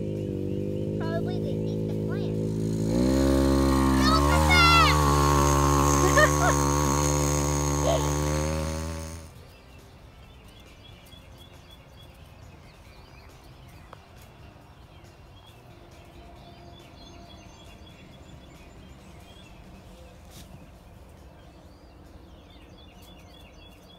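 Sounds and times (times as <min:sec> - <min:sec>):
low steady rumble: 0:00.0 - 0:09.3
small birds chirping: 0:00.0 - 0:23.9.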